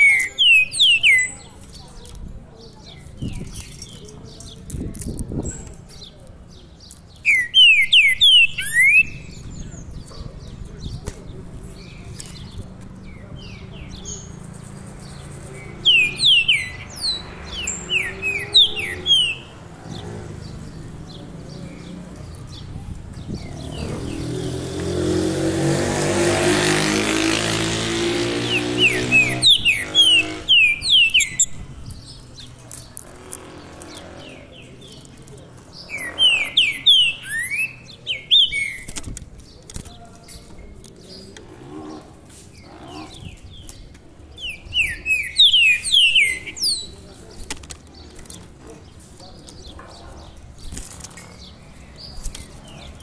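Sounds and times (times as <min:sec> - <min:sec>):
blackbird whistled song: 0:00.0 - 0:01.4, 0:07.1 - 0:10.1, 0:15.6 - 0:19.5, 0:28.4 - 0:31.6, 0:35.8 - 0:38.9, 0:44.4 - 0:47.0
vehicle passing: 0:11.4 - 0:37.6.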